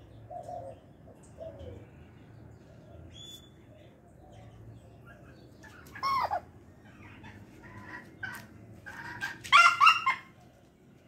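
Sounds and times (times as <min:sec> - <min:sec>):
chicken squawking: 0:05.7 - 0:10.4.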